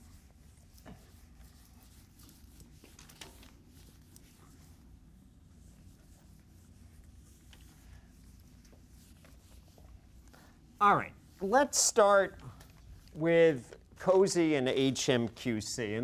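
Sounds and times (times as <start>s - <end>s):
eraser wiping a whiteboard: 0.0s - 12.1s
low room hum: 0.0s - 16.0s.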